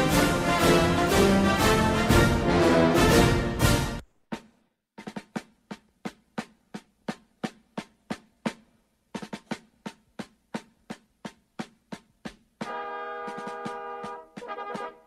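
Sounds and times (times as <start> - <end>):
brass band held chords: 0.0 - 4.0, 12.6 - 15.0
drum cadence: 0.0 - 15.0.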